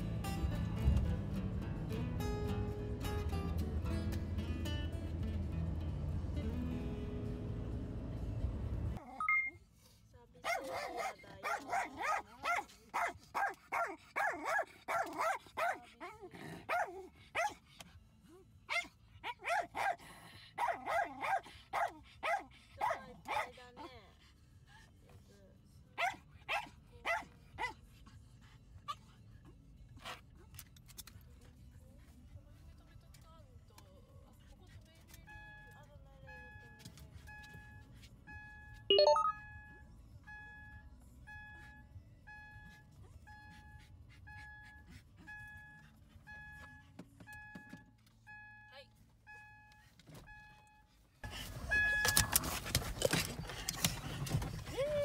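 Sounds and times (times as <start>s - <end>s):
car warning chime beeping: 9.2s - 9.6s, 35.3s - 52.4s
dog barking: 10.4s - 17.6s, 18.7s - 23.6s, 26.0s - 27.8s.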